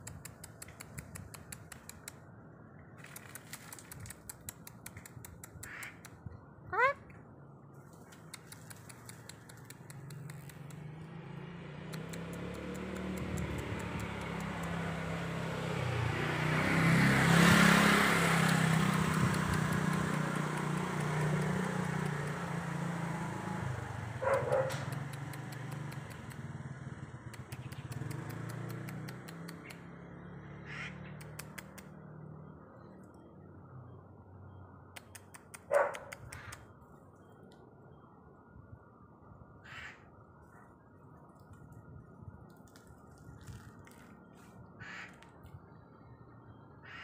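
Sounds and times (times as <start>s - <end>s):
vehicle passing by: 7.7s - 37.4s, 40.1s - 47.0s.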